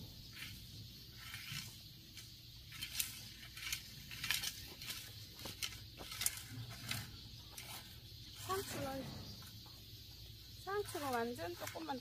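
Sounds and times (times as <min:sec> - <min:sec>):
metal rake scraping through soil: 0:00.2 - 0:09.0
rake clinking against stones: 0:00.2 - 0:09.0, 0:10.6 - 0:12.0.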